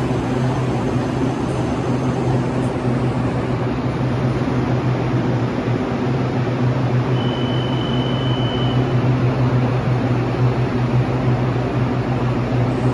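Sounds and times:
train equipment low hum: 0:00.0 - 0:12.9
high steady beep: 0:07.1 - 0:08.9.

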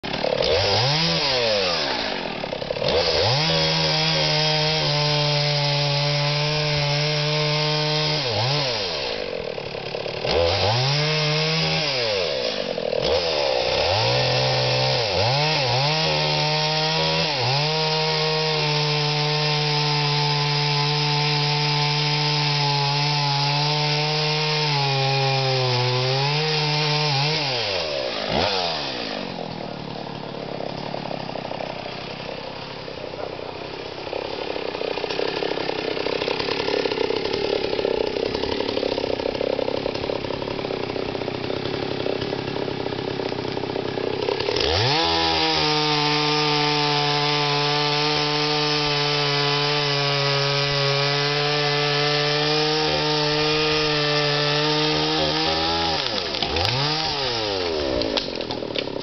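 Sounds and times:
chainsaw cutting tree: 0:00.0 - 0:59.0.

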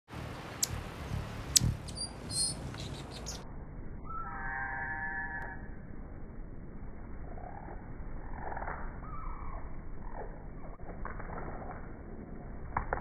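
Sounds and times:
hummingbird wing hum: 0:00.1 - 0:03.4
high squeaky chirps: 0:01.5 - 0:03.4.

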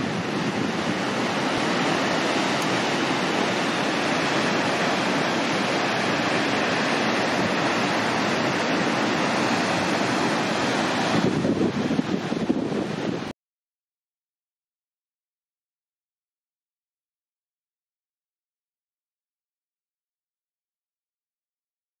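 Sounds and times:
waterfall rushing: 0:00.0 - 0:13.3.

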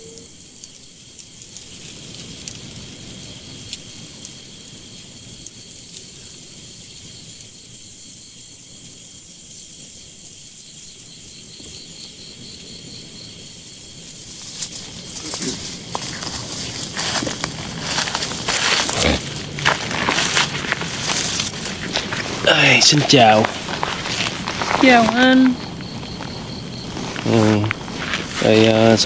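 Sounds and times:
insects trilling: 0:00.0 - 0:29.0
low rumbling noise: 0:14.0 - 0:29.0.

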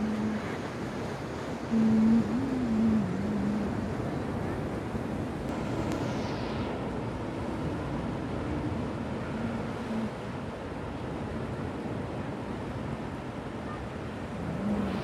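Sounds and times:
low wavering drone: 0:00.0 - 0:00.6, 0:01.7 - 0:03.9, 0:14.4 - 0:15.0
sea surf: 0:00.0 - 0:15.0
wind on microphone: 0:00.0 - 0:15.0.

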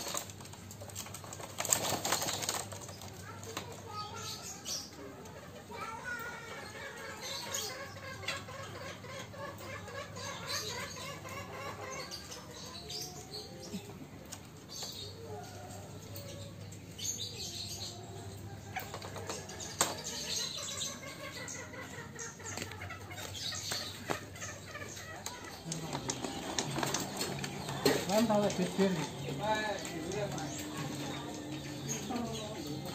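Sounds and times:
fowl flapping wings: 0:00.0 - 0:03.2
small birds chirping: 0:00.0 - 0:32.9.

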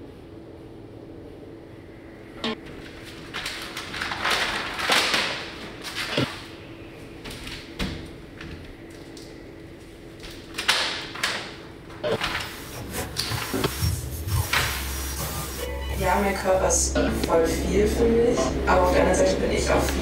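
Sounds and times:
faint steady hum: 0:00.0 - 0:03.4, 0:11.8 - 0:20.0.

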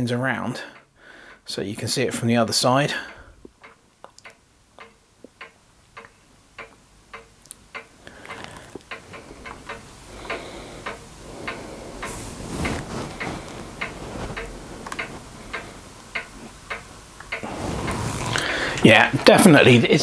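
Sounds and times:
mechanical ticking: 0:03.0 - 0:20.0
rushing noise: 0:11.0 - 0:16.0, 0:17.4 - 0:19.2.

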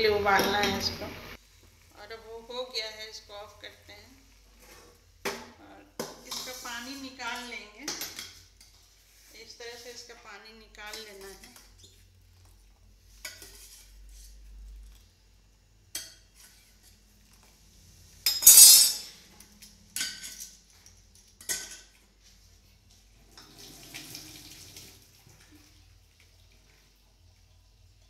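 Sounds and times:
hot water pouring and splashing: 0:00.4 - 0:02.6, 0:21.4 - 0:28.0
metal pots clanking: 0:18.3 - 0:19.1.

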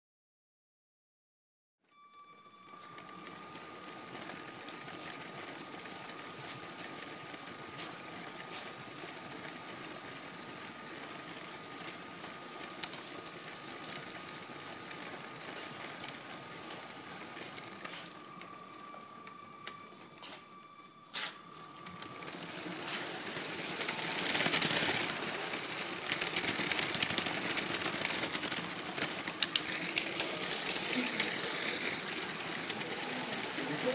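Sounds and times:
toy train motor whirring: 0:04.2 - 0:16.9, 0:21.1 - 0:33.9
wheels clicking on track joints: 0:21.7 - 0:33.9.

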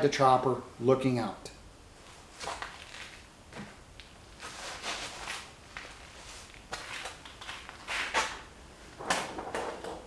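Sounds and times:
clothing rustling and scuffing: 0:02.0 - 0:08.4.

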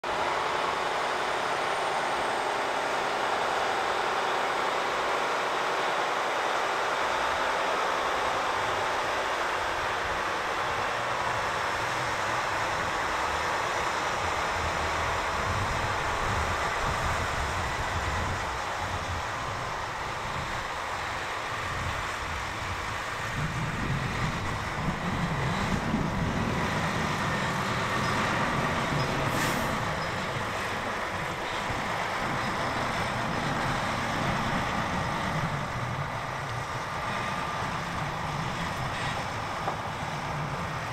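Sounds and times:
diesel engine rumbling: 0:00.0 - 0:40.9
heavy lorry driving past: 0:00.0 - 0:40.9
high air hiss: 0:29.3 - 0:30.0.

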